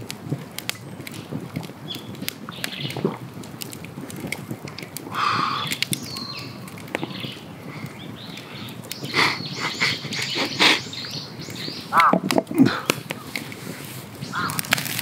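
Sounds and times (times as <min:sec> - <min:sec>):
campfire crackling and popping: 0:00.0 - 0:15.0
birds calling: 0:05.1 - 0:15.0.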